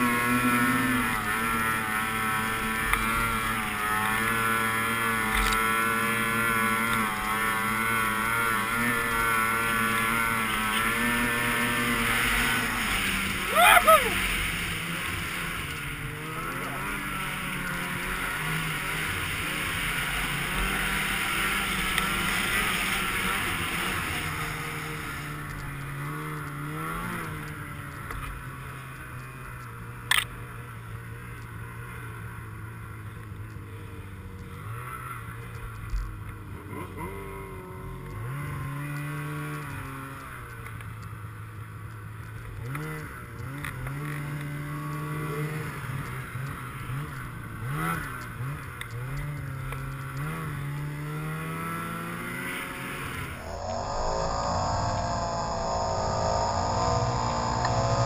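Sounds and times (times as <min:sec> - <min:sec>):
snowmobile engine running: 0:00.0 - 0:29.3, 0:42.4 - 0:58.0
rushing noise: 0:53.1 - 0:58.0.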